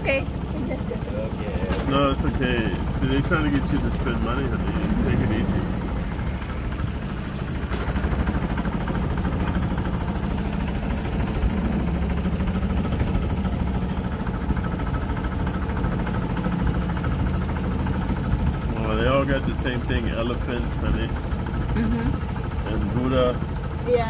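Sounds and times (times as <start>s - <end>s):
boat engine humming: 0.0s - 24.0s.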